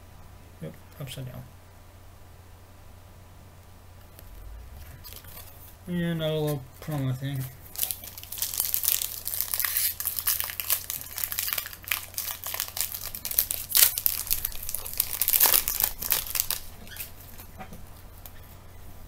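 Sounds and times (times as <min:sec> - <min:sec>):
plastic wrapper crinkling: 0:04.1 - 0:05.8, 0:06.5 - 0:18.4.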